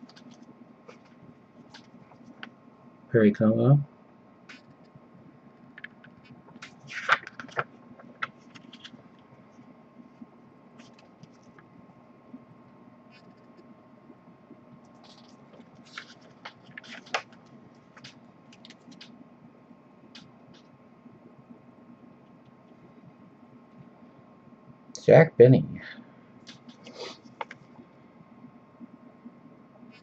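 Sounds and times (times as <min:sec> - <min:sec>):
paper pages rustling: 0:00.0 - 0:02.5, 0:06.5 - 0:09.0, 0:10.8 - 0:11.6, 0:15.0 - 0:19.1
faint steady hum: 0:00.0 - 0:30.0.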